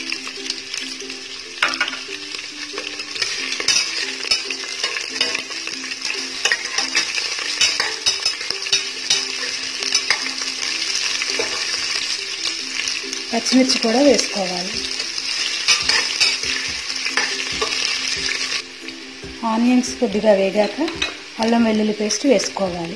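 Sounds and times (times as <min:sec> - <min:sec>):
onions sizzling in hot oil: 0:00.0 - 0:22.9
metal turner scraping a pot: 0:02.7 - 0:11.9, 0:15.4 - 0:18.0.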